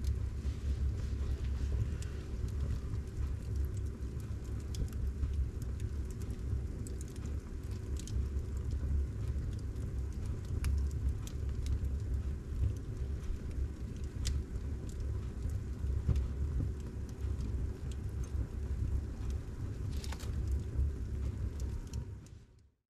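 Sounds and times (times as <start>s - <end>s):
fire crackling and popping: 0.0s - 22.7s
fire rumbling: 0.0s - 22.7s.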